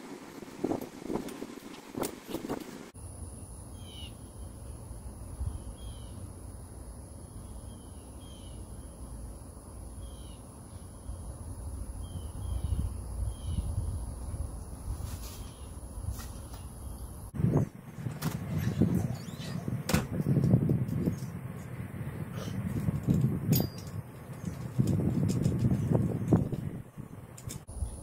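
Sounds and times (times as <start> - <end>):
wind rumbling on microphone: 0.0 - 3.0, 11.0 - 28.0
steady high-pitched whine: 0.0 - 19.8.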